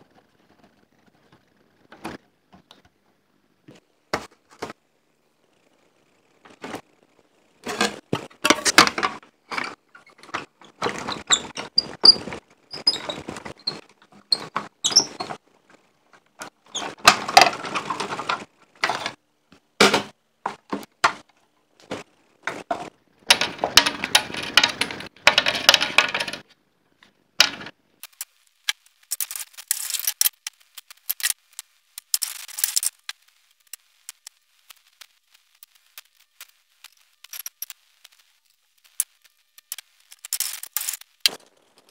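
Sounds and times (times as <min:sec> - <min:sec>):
plates and tray clicking and knocking: 0:07.6 - 0:15.4, 0:16.4 - 0:19.2, 0:21.9 - 0:26.4, 0:27.4 - 0:31.4, 0:38.9 - 0:41.9.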